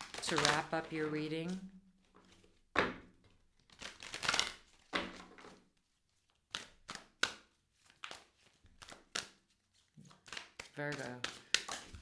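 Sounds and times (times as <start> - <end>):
cards being shuffled: 0.0 - 12.0
card snaps and taps: 10.0 - 12.0.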